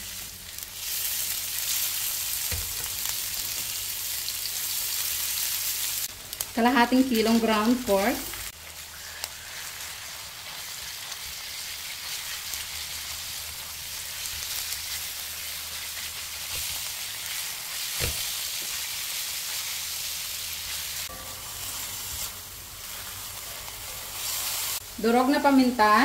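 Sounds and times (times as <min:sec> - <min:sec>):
meat sizzling in a pan: 0:00.0 - 0:26.0
spatula stirring meat: 0:08.5 - 0:24.8.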